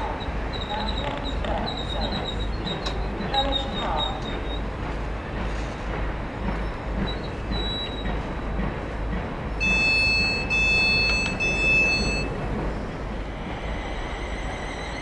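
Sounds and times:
long high warning beeps: 0:00.0 - 0:04.7, 0:07.0 - 0:08.2, 0:09.6 - 0:12.4, 0:13.6 - 0:15.0
stationary train hum: 0:00.0 - 0:15.0.

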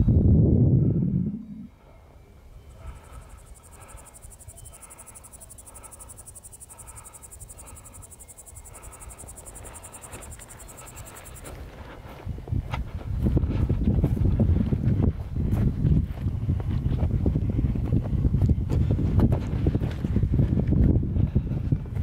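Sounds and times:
insect trilling: 0:02.7 - 0:11.5
footsteps on a trail: 0:08.7 - 0:22.0.

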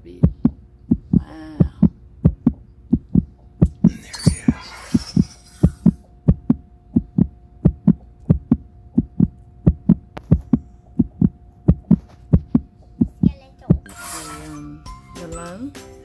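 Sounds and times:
heartbeat thumps: 0:00.0 - 0:04.0, 0:05.7 - 0:13.9
faint steady hum: 0:00.0 - 0:15.6.

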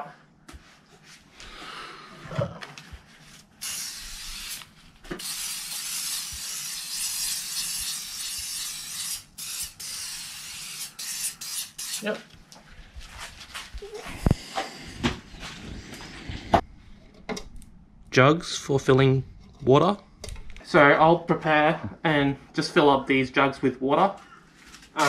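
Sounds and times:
aerosol spray hissing: 0:03.6 - 0:12.0.

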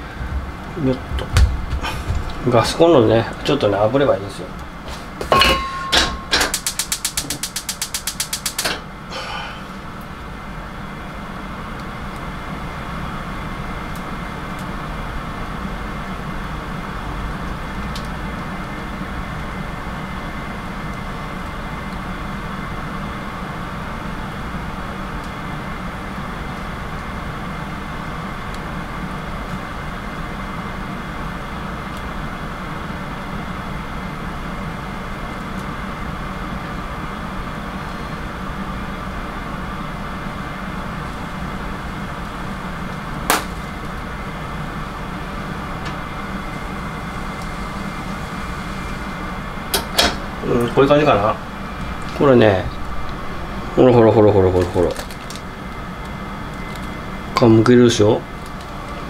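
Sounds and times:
gas burner rushing hum: 0:00.0 - 0:59.0
gas stove igniter clicking: 0:05.9 - 0:08.8, 0:49.7 - 0:50.2.

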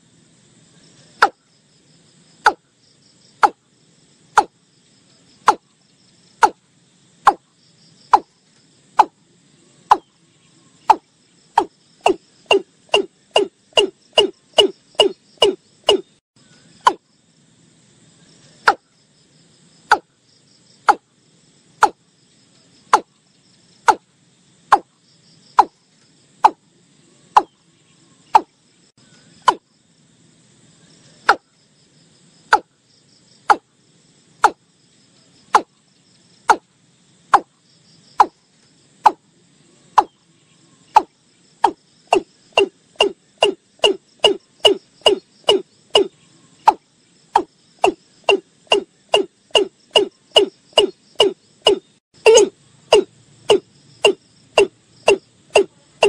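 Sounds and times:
faint insect buzz: 0:00.0 - 0:56.0
bird clucking calls: 0:12.0 - 0:16.1, 0:41.0 - 0:46.1, 0:47.4 - 0:55.7.

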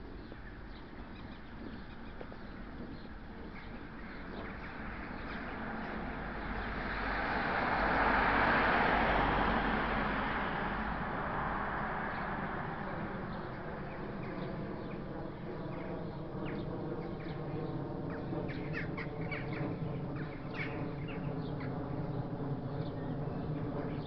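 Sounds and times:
car driving past: 0:06.6 - 0:12.9.

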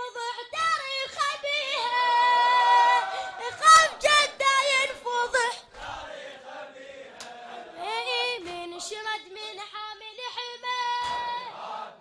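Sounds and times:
men chanting together: 0:05.5 - 0:08.9, 0:11.1 - 0:12.0.

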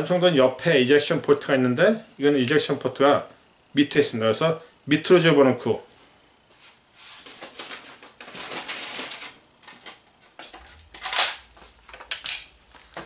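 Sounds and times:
rustling handling noise: 0:06.0 - 0:09.4.

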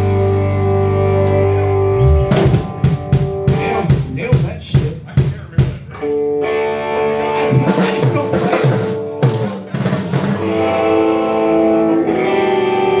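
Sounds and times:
guitar chords: 0:00.0 - 0:13.0
drum kit playing: 0:02.0 - 0:06.2, 0:07.4 - 0:11.1.

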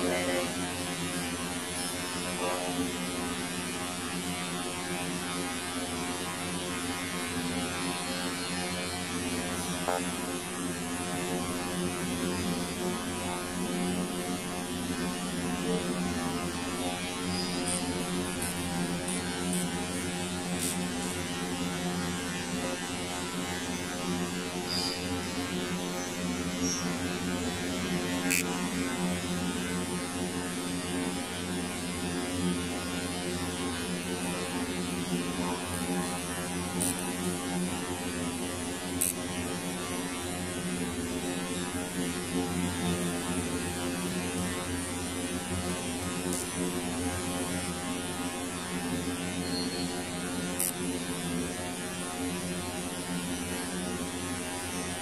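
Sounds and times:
buzzing electrical hum: 0:00.0 - 0:55.0.

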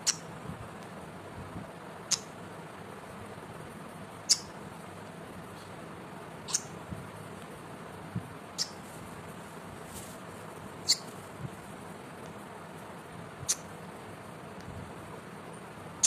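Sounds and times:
parrot chirping: 0:00.0 - 0:00.3, 0:02.0 - 0:02.3, 0:04.2 - 0:04.6, 0:06.4 - 0:06.8, 0:08.6 - 0:08.8, 0:10.8 - 0:11.1, 0:13.4 - 0:13.7.

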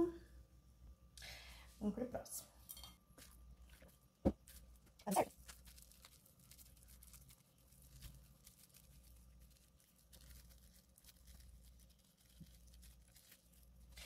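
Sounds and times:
plastic bag crinkling: 0:03.6 - 0:14.0.

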